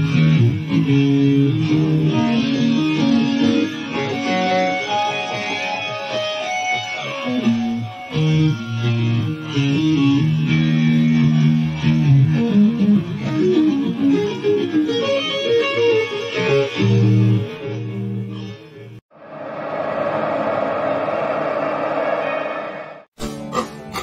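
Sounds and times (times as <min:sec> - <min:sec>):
electric guitar lead: 0:00.0 - 0:19.0.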